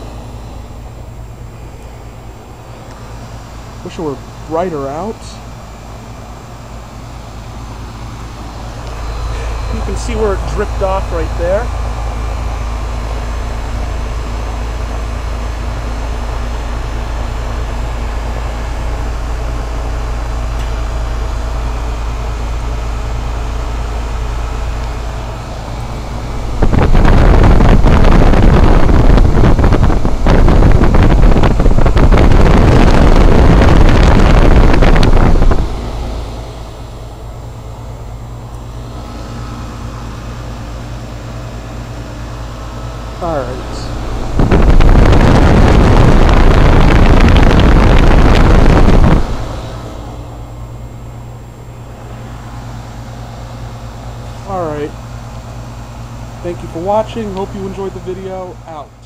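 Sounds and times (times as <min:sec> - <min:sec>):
heat pump unit humming: 0:00.0 - 0:59.0
wind noise on microphone: 0:24.4 - 0:38.9, 0:42.3 - 0:51.7.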